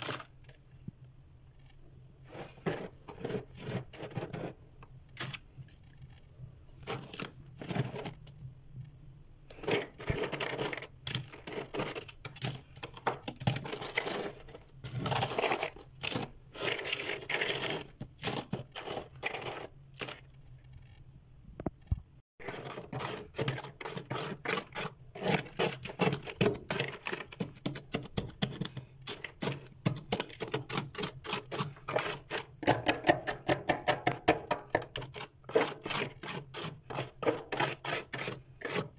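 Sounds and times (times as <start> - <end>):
freezer frost crunching: 0.0 - 0.6, 9.5 - 20.3.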